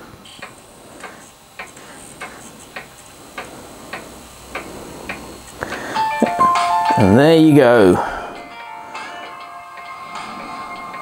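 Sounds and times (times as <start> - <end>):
mechanical ticking: 0.3 - 5.6.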